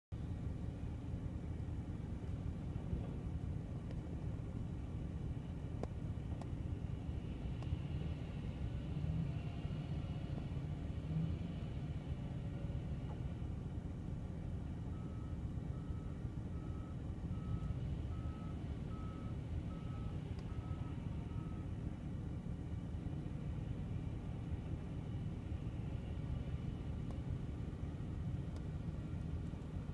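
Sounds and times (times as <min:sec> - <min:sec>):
wheel loader engine rumble: 0:00.2 - 0:09.3
reversing alarm beeps: 0:14.9 - 0:21.7.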